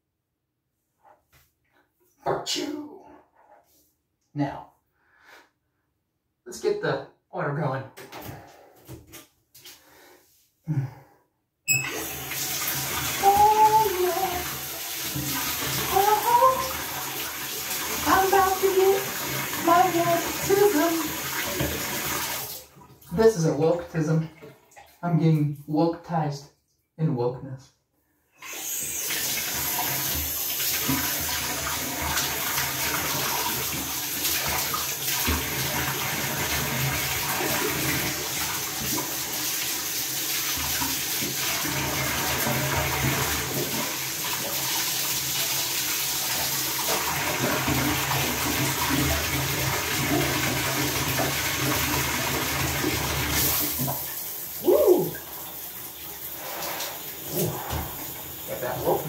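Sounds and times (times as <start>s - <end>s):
water running from bathtub tap: 11.7s - 25.7s, 28.4s - 59.0s.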